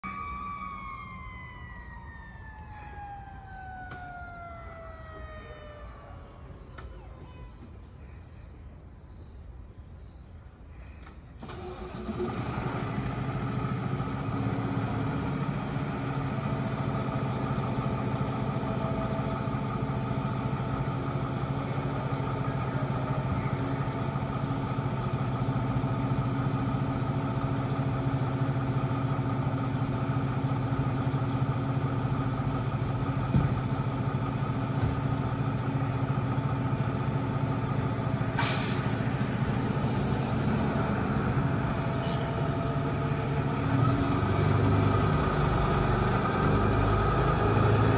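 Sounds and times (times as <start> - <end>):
diesel engine idling: 11.4 - 47.9
air brakes hissing: 38.2 - 41.1.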